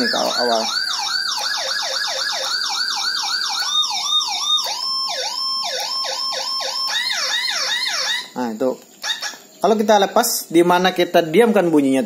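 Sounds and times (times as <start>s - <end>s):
electronic siren sweeping: 0.0s - 8.4s.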